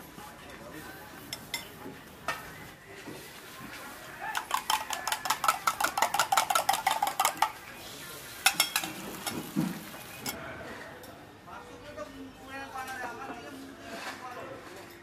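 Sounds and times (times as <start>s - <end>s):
metal spoon clinking on metal: 4.4s - 7.6s, 8.4s - 9.4s.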